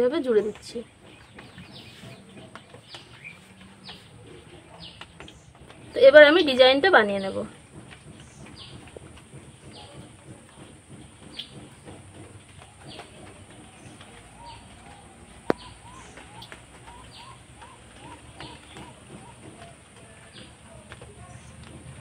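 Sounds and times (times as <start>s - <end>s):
bird chirping: 0.0s - 22.0s
bird trilling notes: 13.6s - 19.8s.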